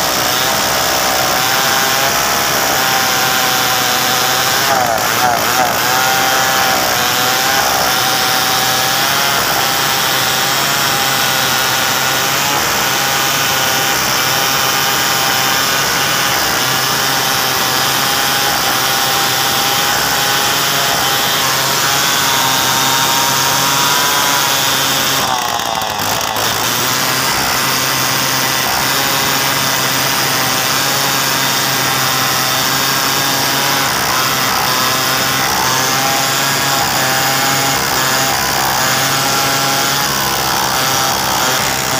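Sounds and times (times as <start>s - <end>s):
chainsaw cutting through log: 0.0s - 41.9s.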